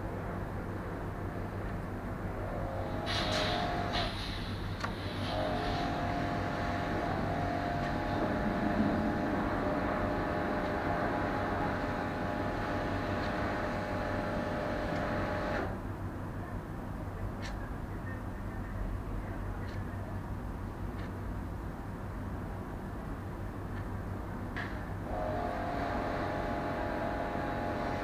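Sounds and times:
faint background hum: 0.0s - 28.0s
machine engine humming: 2.4s - 15.8s, 25.1s - 28.0s.

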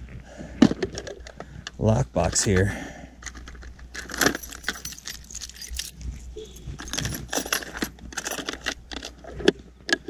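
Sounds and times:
keys jangling: 3.3s - 9.1s.

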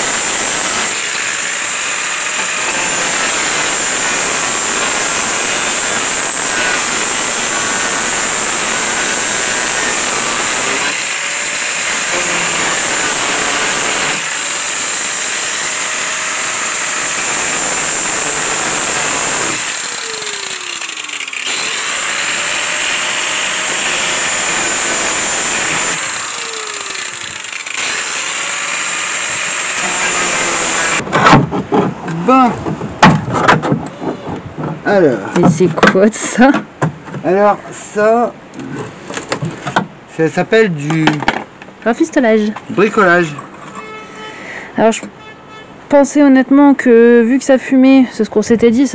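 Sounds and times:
angle grinder cutting steel: 0.0s - 31.0s
loud metal knocks: 32.6s - 34.8s.

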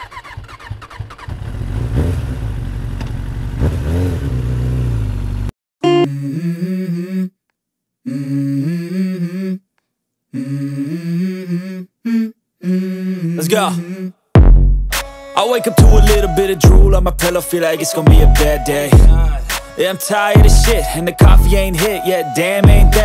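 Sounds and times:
vehicle engine revving: 0.0s - 5.5s
hip-hop track melody: 14.4s - 23.0s.

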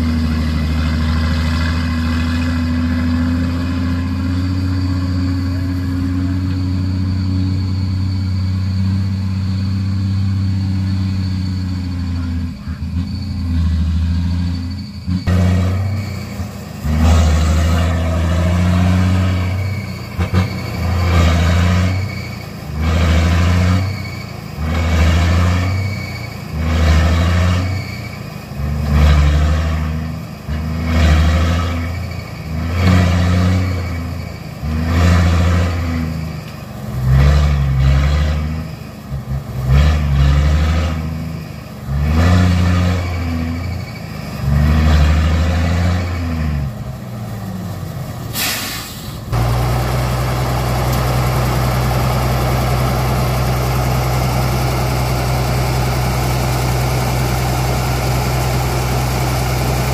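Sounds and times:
vehicle engine revving: 0.0s - 59.9s
burst of hissing: 48.3s - 49.3s.

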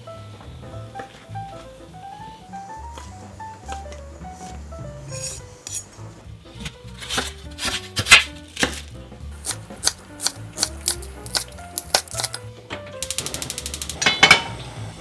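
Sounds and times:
light background music: 0.0s - 15.0s
knife cutting cabbage: 6.6s - 12.4s
knife slicing on wooden board: 6.6s - 12.4s.

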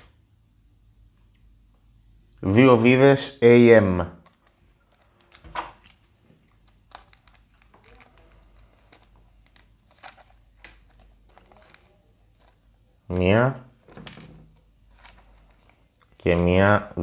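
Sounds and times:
plastic tray crinkling: 4.2s - 17.0s.

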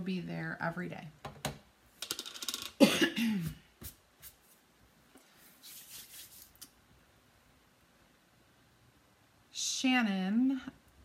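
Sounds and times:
woman coughing: 2.8s - 3.6s
faint brushing noise: 3.4s - 6.7s.

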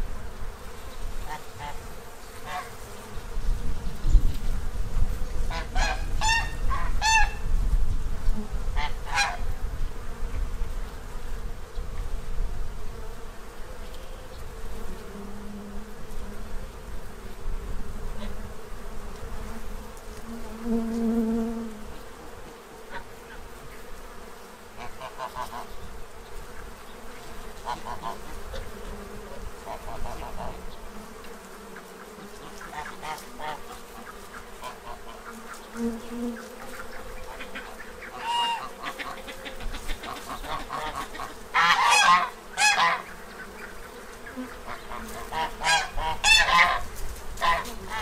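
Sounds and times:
bees buzzing: 0.0s - 48.0s
geese honking: 5.5s - 7.4s, 8.8s - 9.4s, 24.8s - 25.7s, 32.5s - 35.2s, 36.9s - 43.7s, 44.6s - 46.8s, 47.4s - 48.0s.

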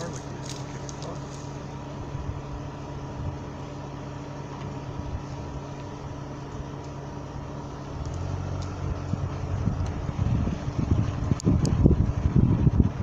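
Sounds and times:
wind rumble on microphone: 0.0s - 3.6s, 7.9s - 13.0s
vehicle engine idling: 0.0s - 13.0s.

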